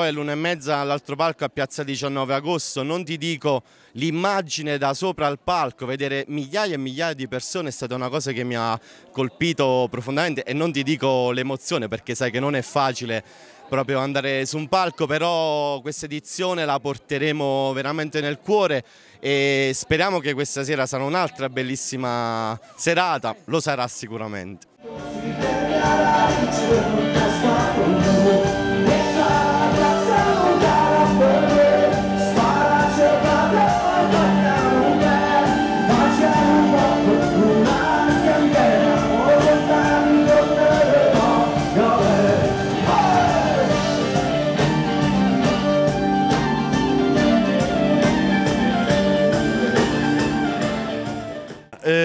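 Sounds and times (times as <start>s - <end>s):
person singing: 24.8s - 44.8s
accordion: 24.8s - 51.8s
guitar: 24.8s - 52.0s
frame drum beat: 25.0s - 51.4s.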